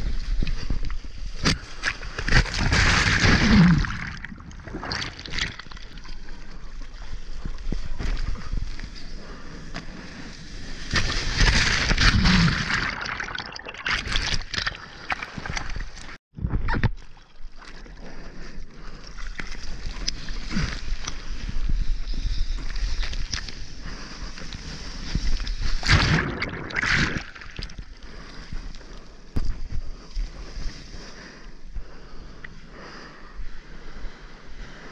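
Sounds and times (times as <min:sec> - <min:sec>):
water splashing and sloshing: 0:01.2 - 0:08.9, 0:10.0 - 0:28.6.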